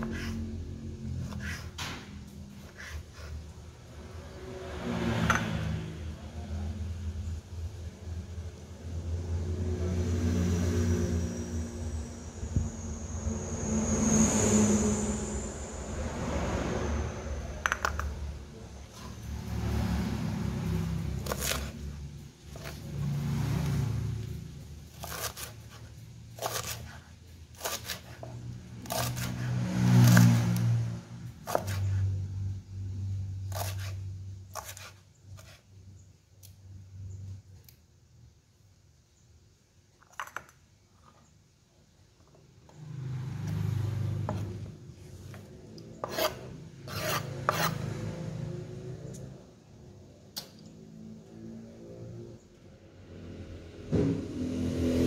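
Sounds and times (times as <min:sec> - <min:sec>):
motor engine droning: 0:09.0 - 0:24.8
thin high whine: 0:10.7 - 0:17.6
knife chopping on wooden board: 0:24.9 - 0:27.0, 0:27.6 - 0:30.6, 0:31.4 - 0:32.0, 0:33.5 - 0:35.6.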